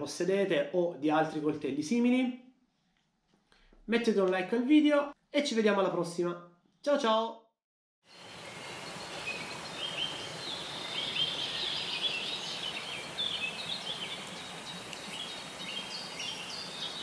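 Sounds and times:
outdoor background hiss: 8.1 - 17.0
birds chirping and singing: 8.2 - 17.0.

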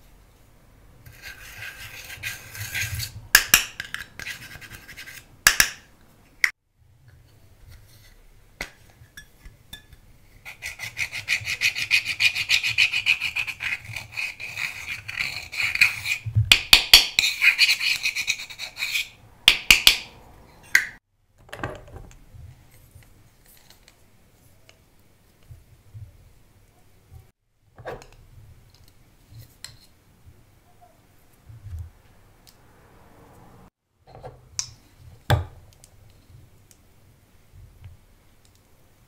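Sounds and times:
tool scraping makeup powder: 1.1 - 3.2, 10.4 - 19.2.

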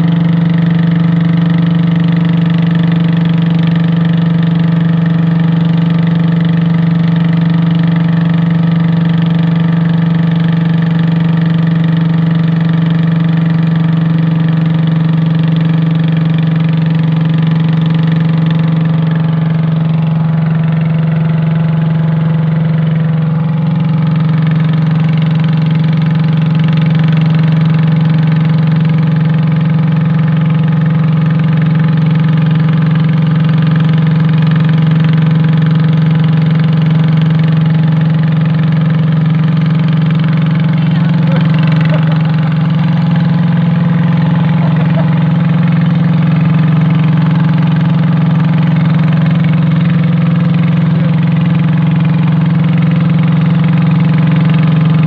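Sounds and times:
boat engine running: 0.0 - 55.0.

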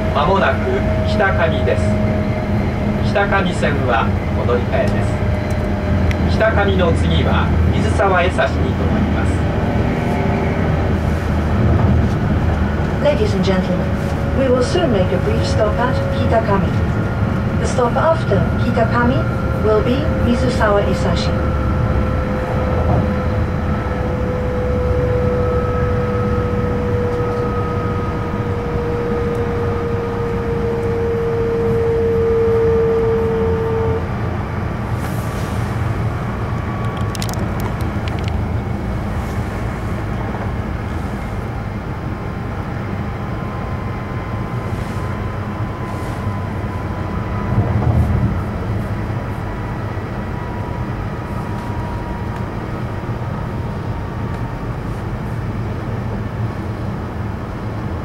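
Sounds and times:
train cabin low rumble: 0.0 - 58.0
train motor whine: 8.7 - 39.3.

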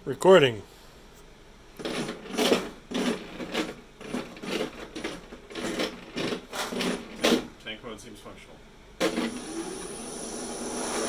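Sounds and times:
robot drive motors pulsing: 9.1 - 11.0.

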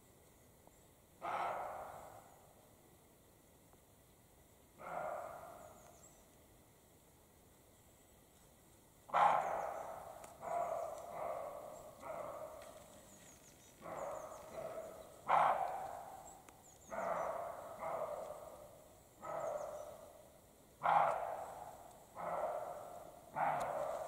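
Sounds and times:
deer barking: 1.2 - 2.3, 4.8 - 5.6, 9.1 - 13.0, 13.8 - 24.0.

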